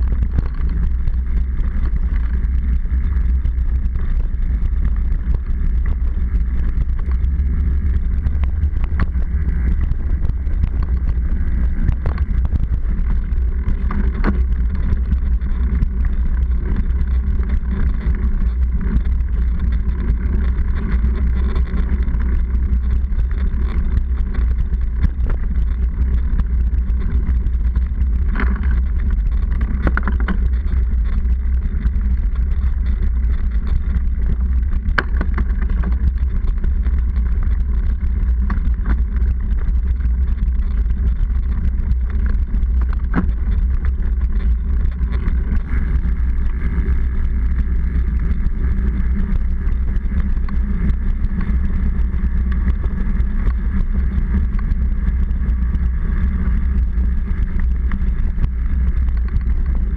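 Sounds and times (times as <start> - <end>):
bicycle frame rattling over bumps: 0.0 - 59.9
bicycle riding on rough pavement: 0.0 - 59.9.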